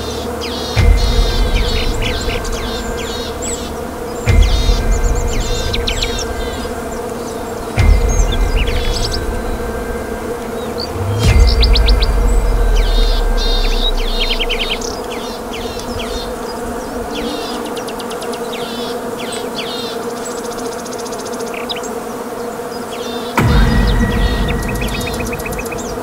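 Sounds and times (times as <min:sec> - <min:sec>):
bird chirps and trills: 0:00.0 - 0:21.9
insects buzzing drone: 0:00.0 - 0:26.0
loud deep sound: 0:00.8 - 0:16.8, 0:23.4 - 0:26.0
low rumble: 0:00.8 - 0:16.8, 0:23.4 - 0:26.0.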